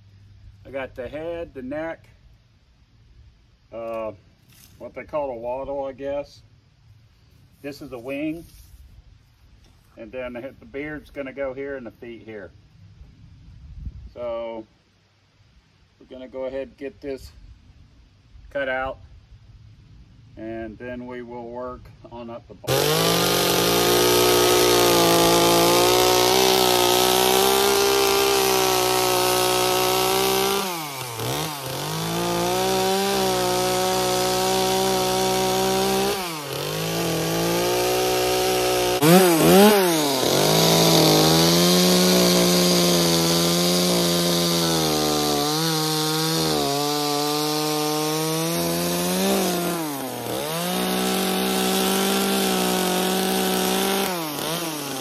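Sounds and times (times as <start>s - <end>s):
chainsaw cutting wood: 22.7s - 55.0s.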